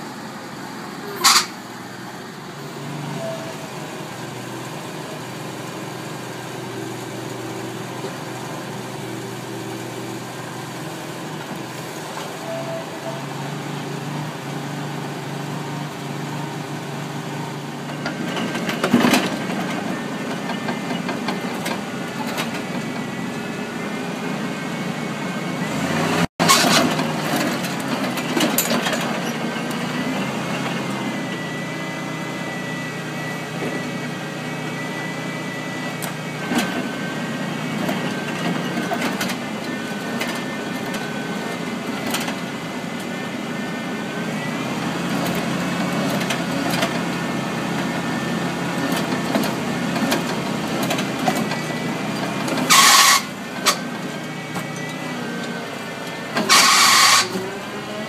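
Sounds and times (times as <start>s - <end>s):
engine running: 0.0s - 58.0s
auger drill boring into soil: 26.4s - 29.4s, 52.5s - 54.0s, 56.3s - 57.8s
short loud burst of noise: 52.7s - 53.4s, 56.4s - 57.4s.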